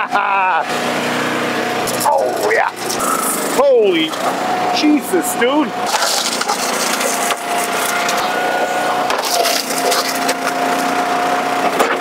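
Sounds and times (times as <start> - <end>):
log splitter machine drone: 0.0 - 12.0
wood cracking and splintering: 5.9 - 8.3, 9.0 - 10.9.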